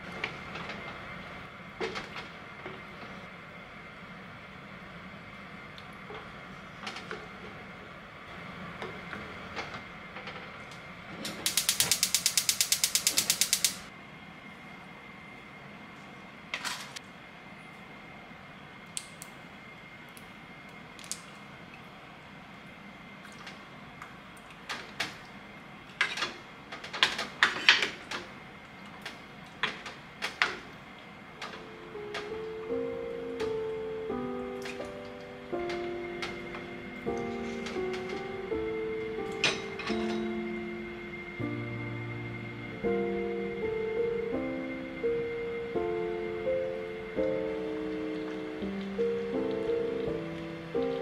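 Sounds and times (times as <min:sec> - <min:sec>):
rapid sharp clicks: 0:11.3 - 0:13.9
soft music: 0:31.4 - 0:51.0.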